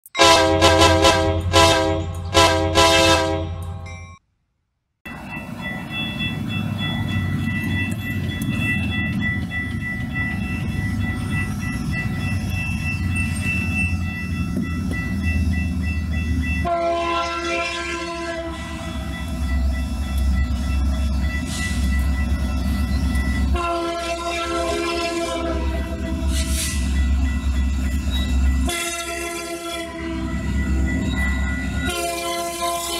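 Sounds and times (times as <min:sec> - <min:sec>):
locomotive air horn: 0:00.2 - 0:03.8, 0:16.6 - 0:18.9, 0:23.5 - 0:26.8, 0:28.6 - 0:30.4, 0:31.8 - 0:32.9
crossing bell ringing: 0:03.4 - 0:04.2, 0:05.1 - 0:32.9.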